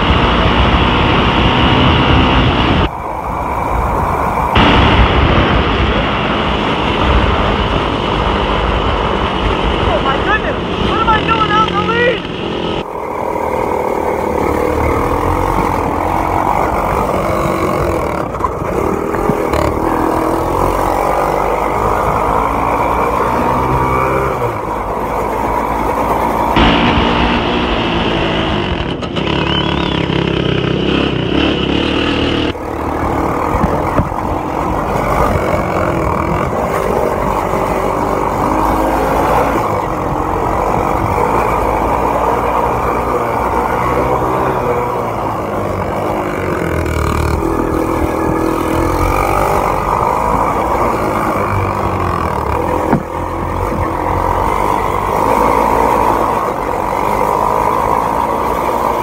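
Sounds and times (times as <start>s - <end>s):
minibike engine revving: 0.0s - 59.0s.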